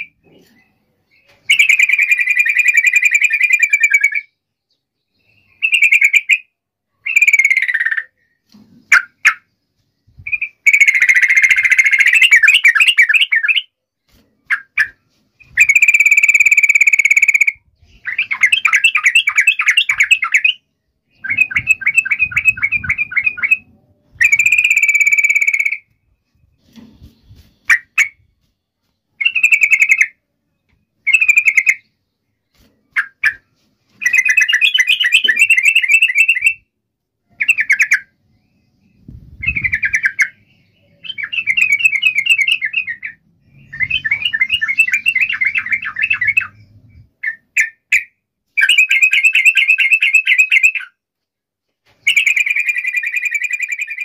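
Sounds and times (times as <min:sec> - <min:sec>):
bird singing chattering notes: 0:14.4 - 0:26.0, 0:29.2 - 0:36.6, 0:37.3 - 0:51.0.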